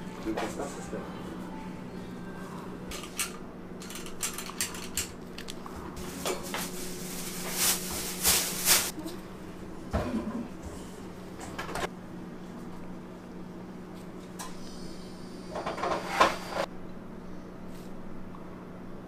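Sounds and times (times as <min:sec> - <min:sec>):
low equipment hum: 0:00.0 - 0:19.0
kitchen clatters and rustles: 0:02.9 - 0:09.1.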